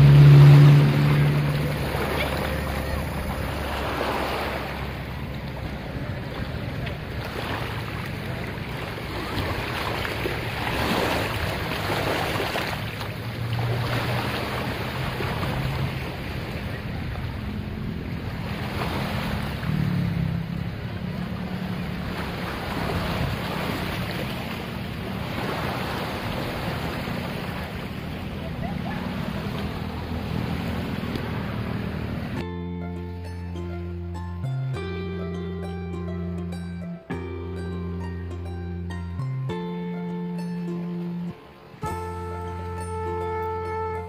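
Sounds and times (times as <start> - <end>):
low hum: 0.0 - 18.6
small waves washing on sand: 0.0 - 32.4.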